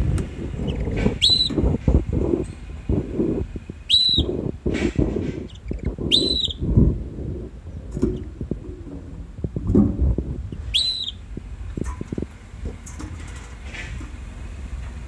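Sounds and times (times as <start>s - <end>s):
low rumbling and bumps: 0.0s - 15.0s
canary chirping: 5.5s - 6.6s.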